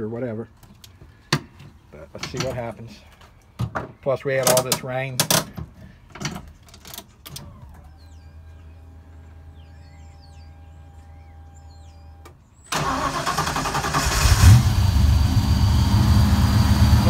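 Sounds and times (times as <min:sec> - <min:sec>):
car engine starting and idling: 0:07.2 - 0:17.0.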